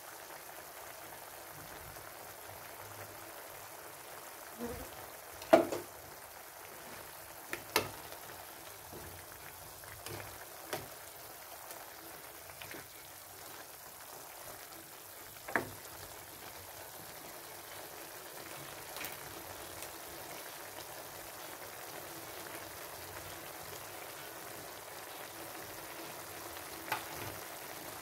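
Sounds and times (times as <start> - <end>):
sauce simmering and bubbling: 0.0 - 28.0
spatula clicking on pan: 7.5 - 8.0, 26.9 - 27.2.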